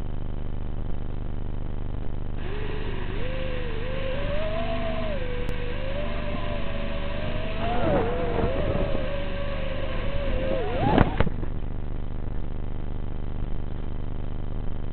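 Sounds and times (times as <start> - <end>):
wavering whine: 0.0 - 12.1
drone motors humming: 2.0 - 11.7.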